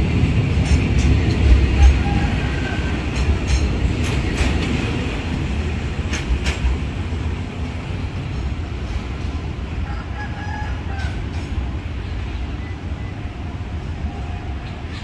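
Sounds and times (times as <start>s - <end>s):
wheels clacking over rail joints: 0.0s - 9.5s, 10.9s - 12.2s
freight train rumbling past: 0.0s - 15.0s.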